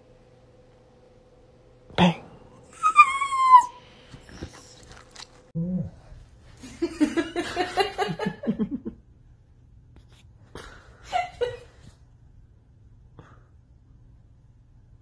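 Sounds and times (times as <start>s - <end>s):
dog high-pitched cry: 2.7s - 4.7s.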